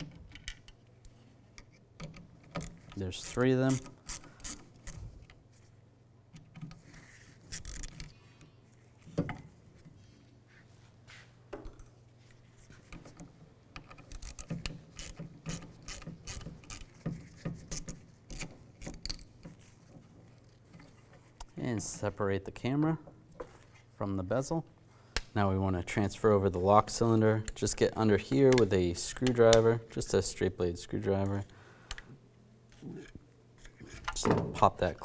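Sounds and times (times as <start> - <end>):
screwdriver scraping: 13.8 - 21.0.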